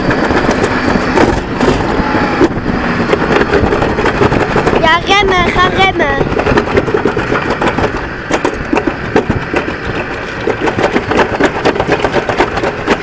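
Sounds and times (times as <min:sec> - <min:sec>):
rapid clattering: 0:00.0 - 0:13.0
sled wheels rumbling on metal track: 0:00.0 - 0:13.0.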